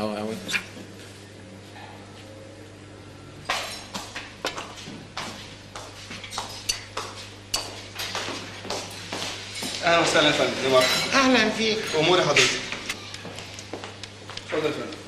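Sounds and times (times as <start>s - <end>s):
steady low hum: 0.0s - 15.0s
cutlery and dishes clinking: 10.6s - 13.0s.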